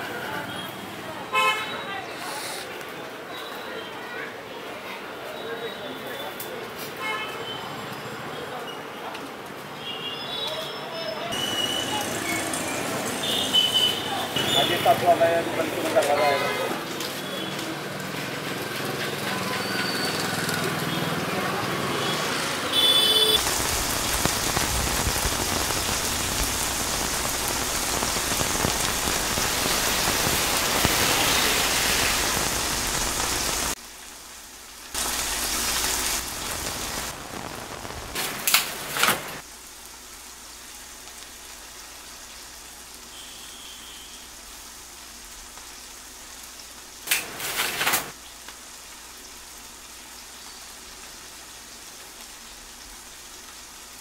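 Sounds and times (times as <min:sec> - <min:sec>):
heavy rain hissing: 0:00.0 - 0:05.2, 0:11.2 - 0:54.0
loud noise bursts: 0:22.0 - 0:33.8, 0:35.0 - 0:38.6.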